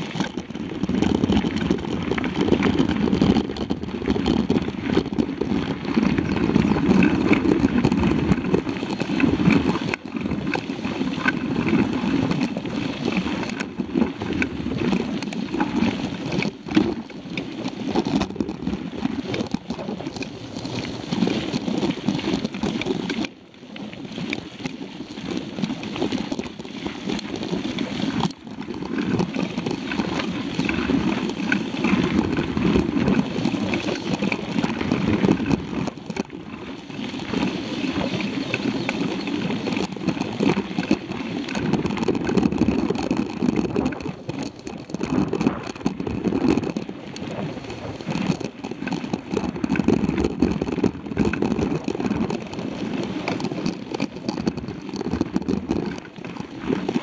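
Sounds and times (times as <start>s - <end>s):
bike tyres on dirt: 0.0s - 17.0s
bike rattling over bumps: 0.0s - 23.3s, 24.2s - 57.0s.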